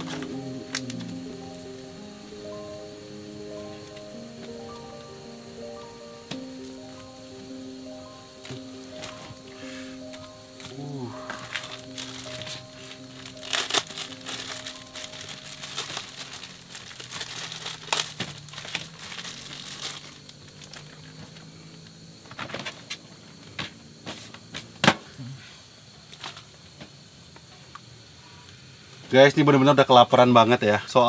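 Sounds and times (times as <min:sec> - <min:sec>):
soft background music: 0:00.0 - 0:21.2
plastic packet crinkling: 0:10.6 - 0:21.2.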